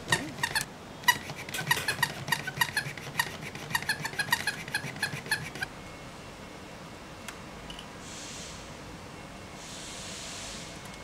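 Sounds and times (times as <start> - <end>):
short high squeaks: 0.0 - 5.7.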